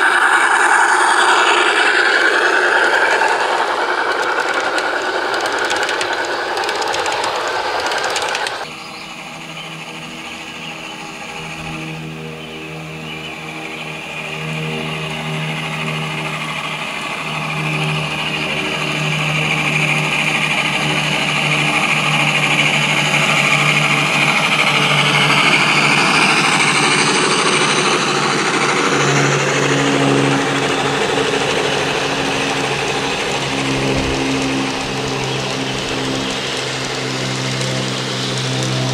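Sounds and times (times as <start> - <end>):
train wheels clicking on rails: 0.0 - 38.9.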